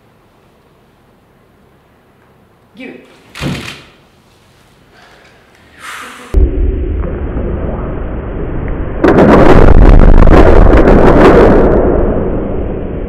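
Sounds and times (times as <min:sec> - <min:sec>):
explosion boom: 0:06.3 - 0:13.0
low rumble: 0:06.3 - 0:13.0.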